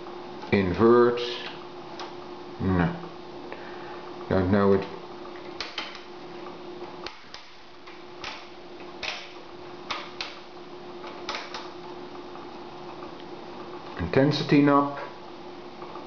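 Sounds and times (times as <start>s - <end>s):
faint steady hum: 0.0s - 16.0s
oscilloscope knobs and switches clicking: 4.7s - 11.8s.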